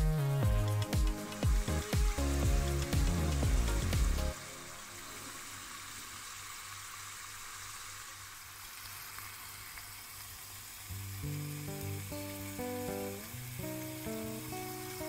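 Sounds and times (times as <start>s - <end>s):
background music: 0.0s - 5.7s
potatoes sizzling in hot oil: 0.5s - 15.0s.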